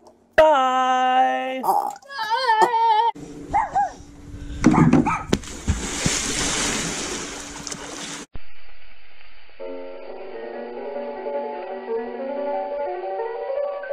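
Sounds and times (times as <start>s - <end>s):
pool water splashing: 5.4s - 8.3s.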